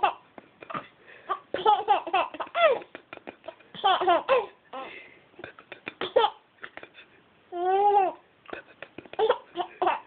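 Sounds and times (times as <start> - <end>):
baby babbling: 7.5 - 8.2.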